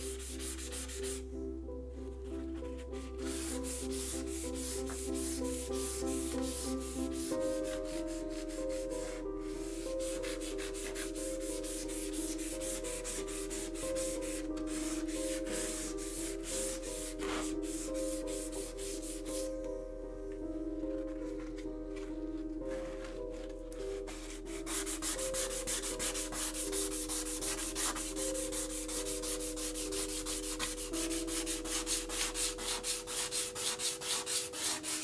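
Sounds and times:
background music: 0.0 - 35.0
sandpaper rubbing saw blade: 24.6 - 35.0.

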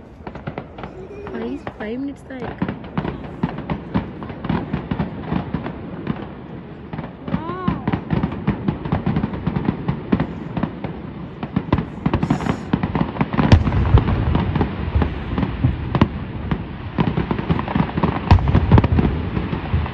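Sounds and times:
fireworks booms: 0.0 - 19.9
fireworks popping and crackling: 0.0 - 19.9.

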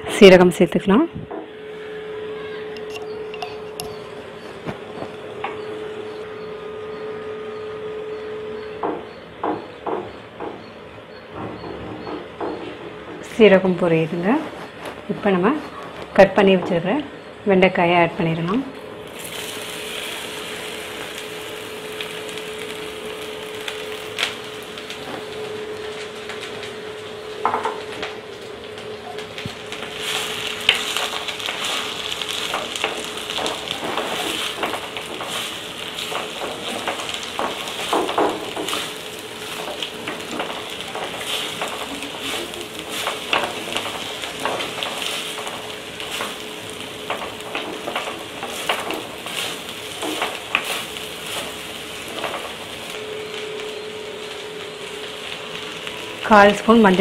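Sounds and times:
steady hum: 0.0 - 57.0
okra sizzling in oil: 1.7 - 8.8, 17.7 - 57.0
spatula scraping clay pot: 2.8 - 4.6.

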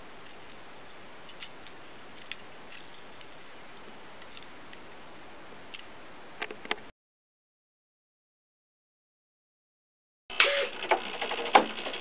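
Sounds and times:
faint steady hiss: 0.0 - 6.9.

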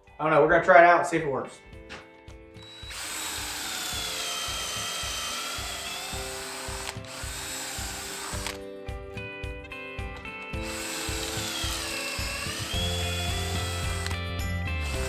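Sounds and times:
background music with steady beat: 0.0 - 15.0
cordless drill boring into wood: 2.6 - 8.6, 10.6 - 15.0.

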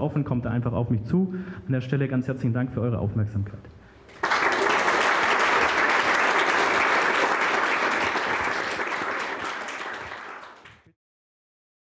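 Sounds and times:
audience applauding: 4.1 - 10.9.

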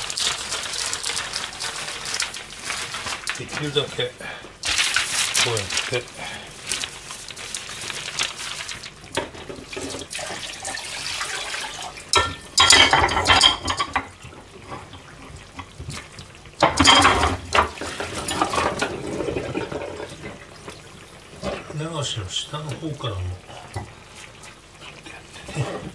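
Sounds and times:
newspaper rustling: 0.0 - 11.2.

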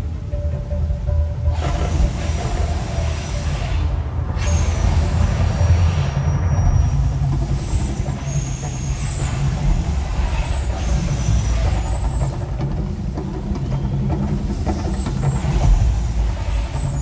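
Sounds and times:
deep steady rumble: 0.0 - 17.0
gas fire jets whooshing: 1.6 - 17.0.

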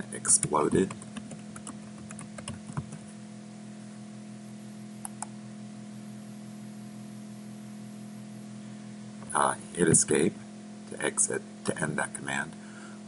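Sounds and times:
low electrical hum with hiss: 0.0 - 13.0.

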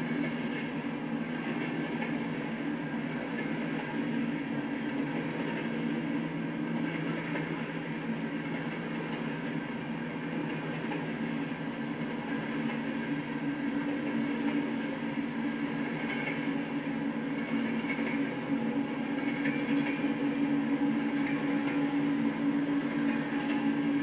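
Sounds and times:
freight train rumbling past: 0.0 - 24.0.

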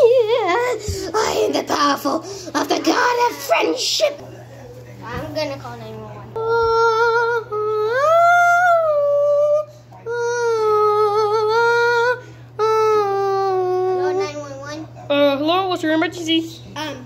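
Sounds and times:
child humming: 6.4 - 14.6.

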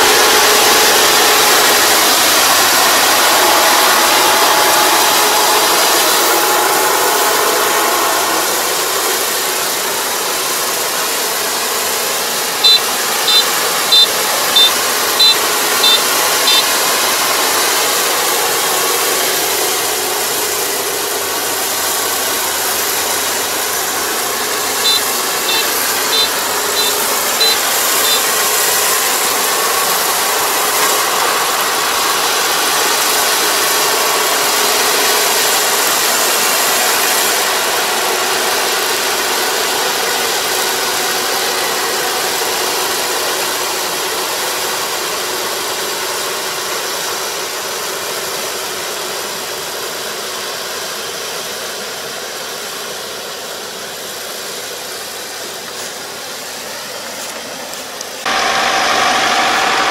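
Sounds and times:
combine harvester running: 0.0 - 59.9
short high beeps: 12.6 - 16.7, 24.8 - 28.4.

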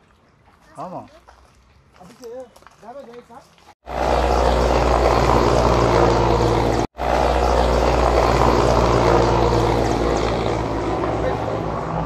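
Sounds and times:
helicopter rotor beating drone: 3.8 - 12.0.

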